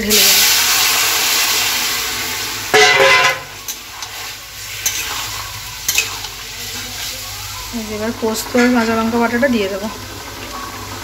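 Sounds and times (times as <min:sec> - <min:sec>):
food sizzling in hot oil: 0:00.0 - 0:11.0
loud horn-like blast: 0:02.7 - 0:03.5
spatula clinking: 0:02.7 - 0:07.2, 0:08.3 - 0:09.2.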